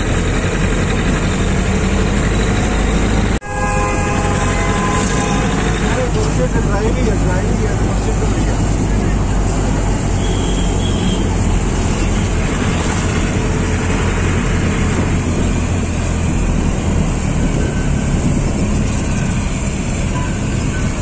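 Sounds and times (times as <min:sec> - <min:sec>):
motorcycles running: 0:00.0 - 0:21.0
wind rushing over microphone: 0:07.2 - 0:21.0.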